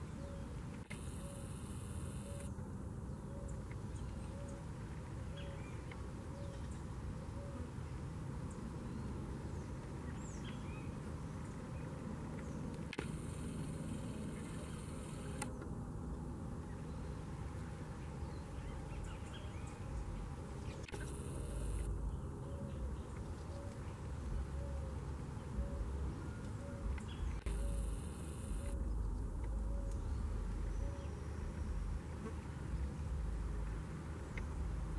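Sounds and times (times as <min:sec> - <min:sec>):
low outdoor rumble: 0:00.0 - 0:34.9
bird chirps: 0:25.5 - 0:32.0.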